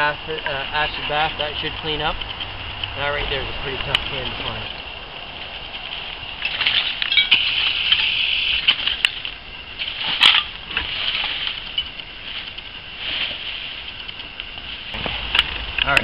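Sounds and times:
sharp metallic clinks: 6.4s - 8.3s
tool scraping through dry leaves: 9.8s - 15.3s.

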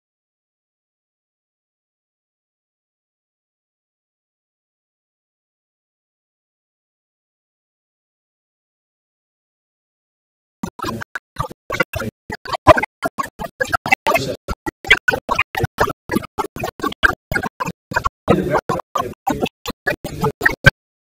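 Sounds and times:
man's voice stuttering through microphone: 10.6s - 20.8s.

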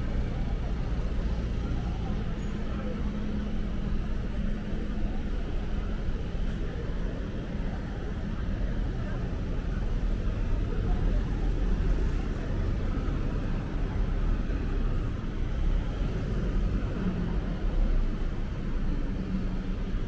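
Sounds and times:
low rumble of passing vehicles: 0.0s - 20.0s.

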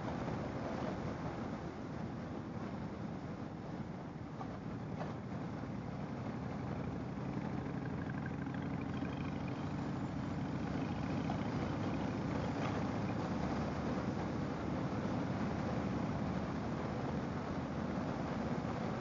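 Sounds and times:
motorcycle engine running: 4.3s - 19.0s.

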